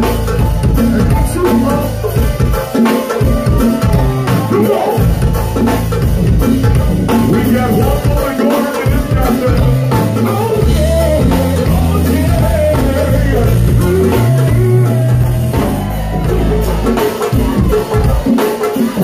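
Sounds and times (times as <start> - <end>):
loud music with deep bass: 0.0 - 19.0
man singing into microphone: 7.2 - 15.4.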